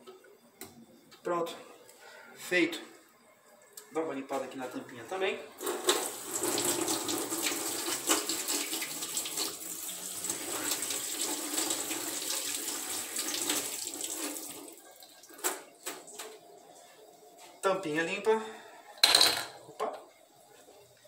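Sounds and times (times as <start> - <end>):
tap water running into sink: 5.6 - 16.4.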